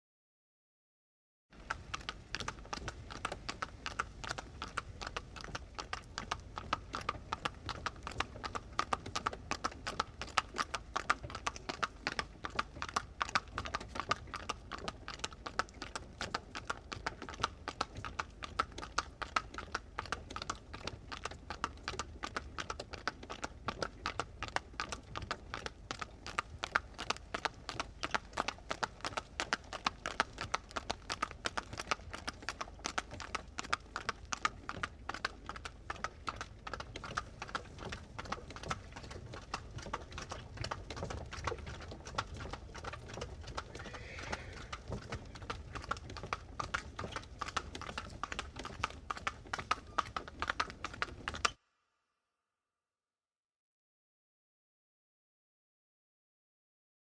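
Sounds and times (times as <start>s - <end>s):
hooves clip-clopping: 1.6s - 51.6s
wagon rattling: 36.7s - 51.5s.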